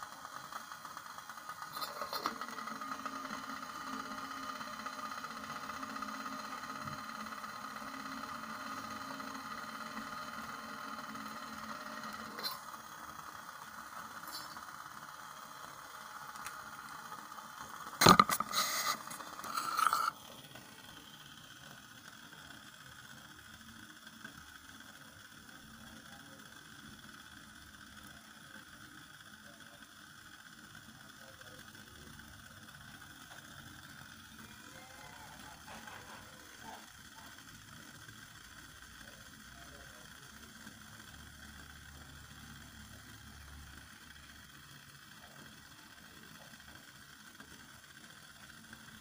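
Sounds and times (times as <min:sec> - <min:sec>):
alcohol stove flame hissing: 0:00.0 - 0:49.0.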